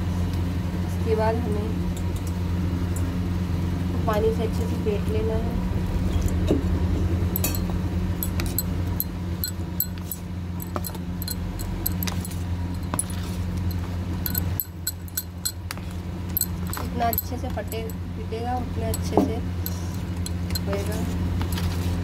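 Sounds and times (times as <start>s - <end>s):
steady low hum: 0.0s - 22.0s
spoon scraping and clinking steel bowl: 7.4s - 15.6s.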